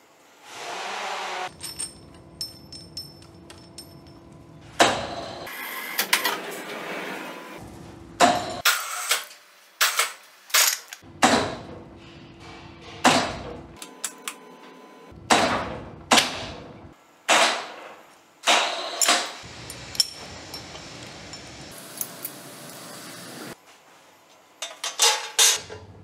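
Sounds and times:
light metal clinks: 1.5s - 4.3s
hammer striking metal: 11.1s - 13.6s.

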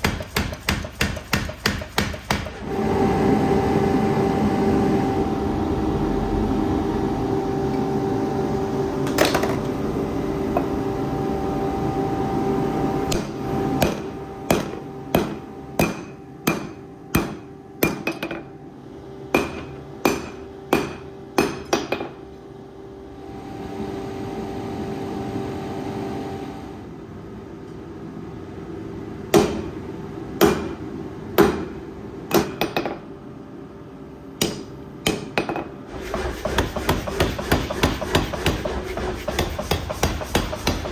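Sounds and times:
hammer striking steel on anvil: 0.0s - 2.6s, 13.1s - 18.5s, 19.3s - 22.2s, 29.3s - 29.7s, 30.4s - 30.8s, 31.4s - 33.0s, 34.4s - 35.7s, 36.4s - 40.9s
forge blower humming: 0.0s - 40.9s.

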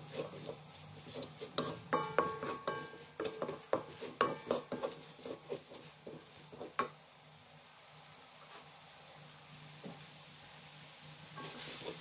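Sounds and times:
wooden spatula scraping wok: 0.0s - 7.0s, 11.4s - 12.0s
paste sizzling: 0.0s - 7.5s, 9.9s - 12.0s.

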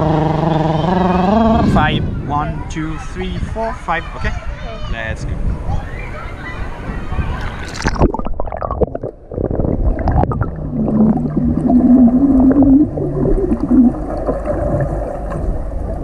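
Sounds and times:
low wavering hum: 0.0s - 2.3s, 8.2s - 16.0s
pool water splashing: 6.0s - 16.0s
bubbles blown underwater: 7.4s - 15.4s.

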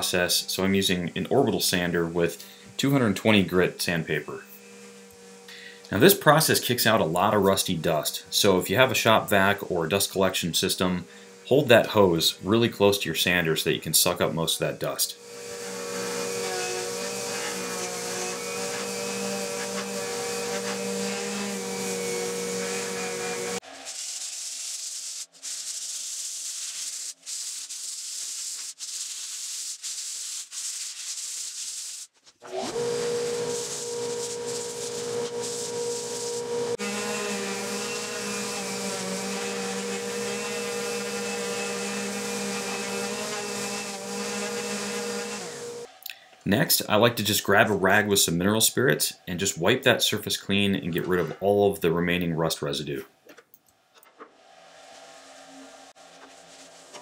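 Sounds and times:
shop vacuum hiss: 3.6s - 12.5s, 32.6s - 45.9s
orbital sander whine: 15.2s - 23.8s, 32.4s - 45.9s.

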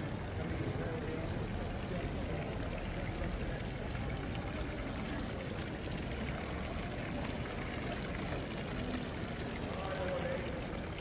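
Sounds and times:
fountain water pouring into basin: 0.0s - 11.0s.

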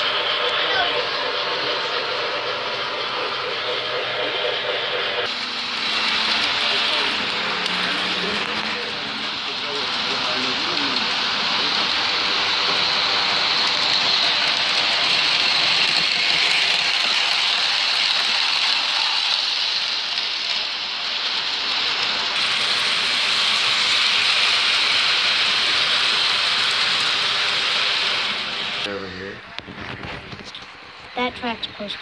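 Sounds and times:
model trains whirring rattle: 0.0s - 32.0s.

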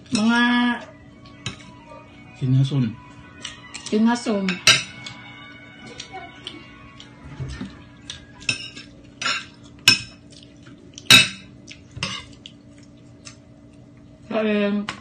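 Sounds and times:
cutlery clinking on a plate: 4.5s - 5.1s, 8.4s - 10.2s.

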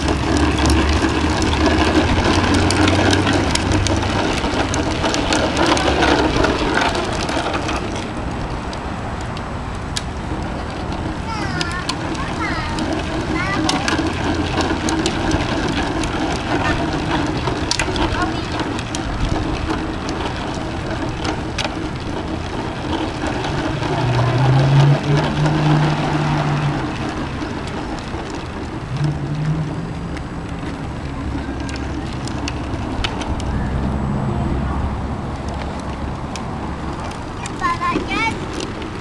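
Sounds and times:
plastic wheels rattling on asphalt: 0.0s - 39.0s
low hum: 23.2s - 37.2s.

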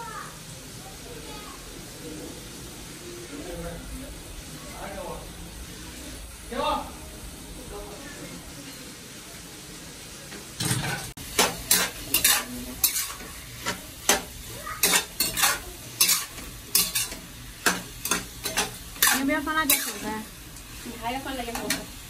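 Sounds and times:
food sizzling: 0.0s - 22.0s
metal spatula scraping wok: 10.6s - 22.0s.

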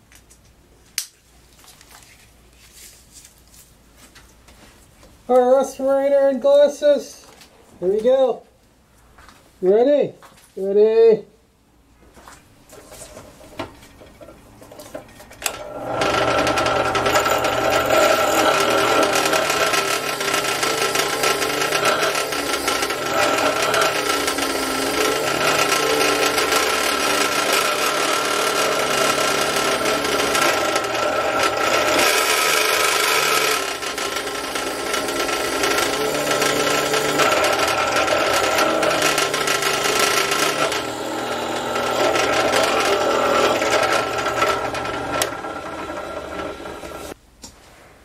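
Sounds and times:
drill press whine: 13.2s - 47.2s
drill bit cutting metal: 15.4s - 47.2s.

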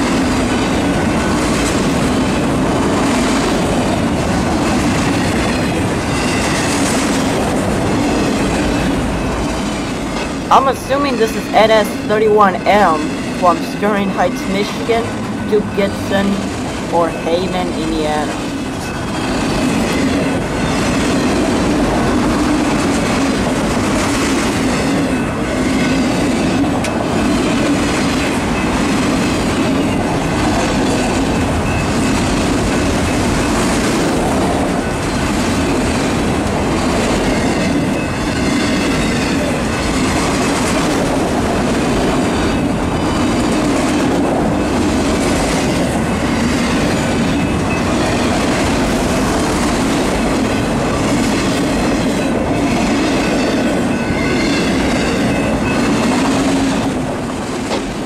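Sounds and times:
train wheels rumbling on rails: 0.0s - 58.0s
wheels clacking over rail joints: 18.8s - 58.0s.

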